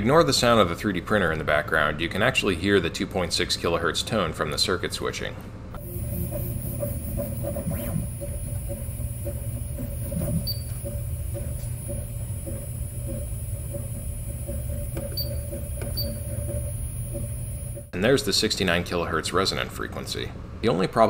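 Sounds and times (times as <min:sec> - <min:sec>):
high-pitched circuit whine: 0:05.8 - 0:17.9
printer motors whirring: 0:05.8 - 0:17.9.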